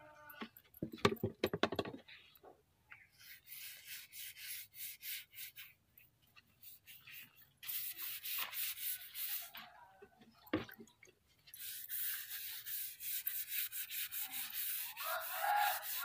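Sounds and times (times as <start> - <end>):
paintbrush swishing on wood: 3.2 - 9.8, 11.5 - 16.0.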